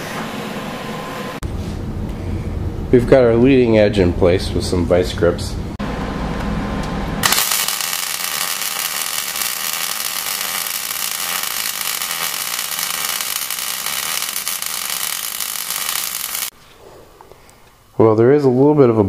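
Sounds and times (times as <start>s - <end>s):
welder arc crackling: 7.2s - 16.6s.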